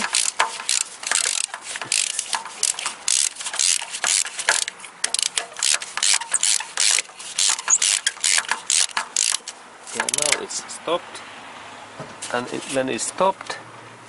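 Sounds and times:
ratchet wrench clicking: 0:00.0 - 0:10.4.

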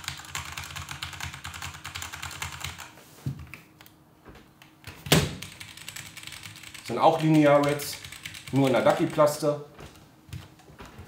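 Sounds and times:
mechanical keyboard typing: 0:00.0 - 0:02.9, 0:04.8 - 0:09.4.

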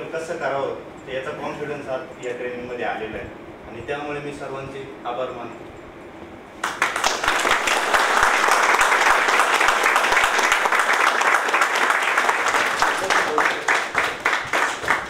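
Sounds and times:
people applauding: 0:06.6 - 0:15.0.

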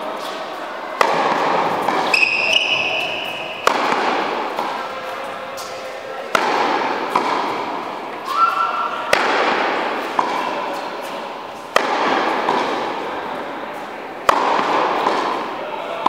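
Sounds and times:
racket hitting tennis ball: 0:00.1 - 0:16.0
ball bouncing on court: 0:01.0 - 0:04.8, 0:06.3 - 0:07.6, 0:09.1 - 0:12.9, 0:14.2 - 0:15.4.

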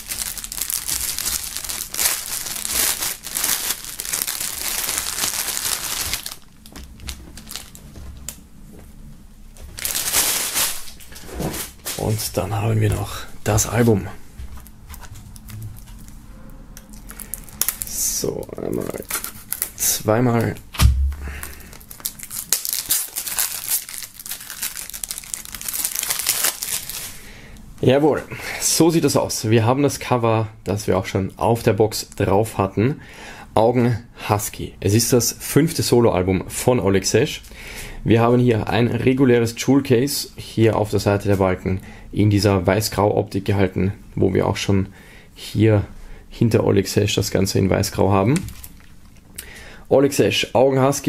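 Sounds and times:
plastic bag crinkling: 0:00.0 - 0:08.3, 0:09.7 - 0:12.3, 0:16.9 - 0:20.1, 0:20.8 - 0:27.2, 0:48.4 - 0:49.3.

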